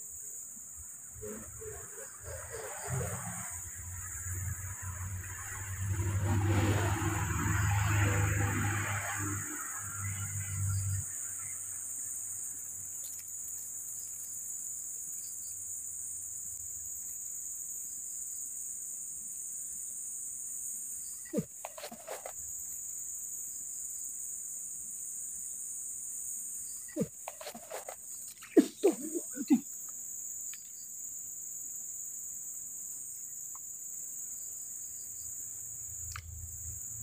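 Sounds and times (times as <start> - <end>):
insect chorus drone: 0.0 - 37.0
short clicks and rustles: 21.4 - 22.4, 27.0 - 28.6.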